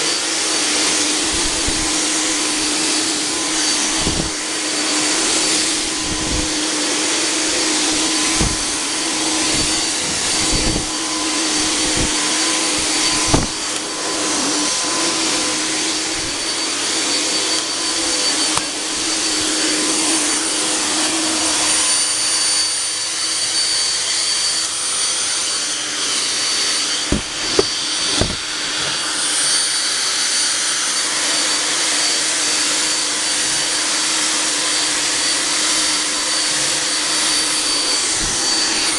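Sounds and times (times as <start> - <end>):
fog generator whining: 0.0 - 21.1, 25.5 - 29.6, 34.6 - 38.9
dull knocks: 7.8 - 8.8, 9.4 - 13.6, 27.1 - 28.6.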